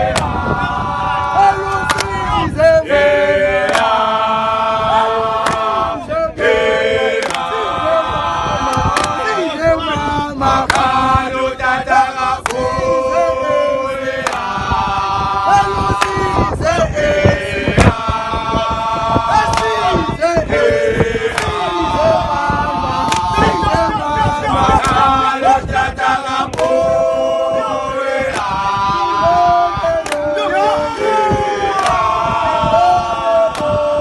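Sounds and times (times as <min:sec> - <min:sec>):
men singing in harmony: 0:00.0 - 0:34.0
hand claps: 0:00.1 - 0:00.3, 0:01.8 - 0:02.1, 0:03.6 - 0:03.9, 0:05.4 - 0:05.7, 0:07.2 - 0:07.5, 0:08.7 - 0:09.2, 0:10.6 - 0:10.9, 0:12.4 - 0:12.6, 0:14.2 - 0:14.5, 0:16.0 - 0:16.2, 0:19.4 - 0:19.7, 0:21.3 - 0:21.6, 0:23.0 - 0:23.3, 0:30.0 - 0:30.3, 0:31.8 - 0:32.0, 0:33.5 - 0:33.7.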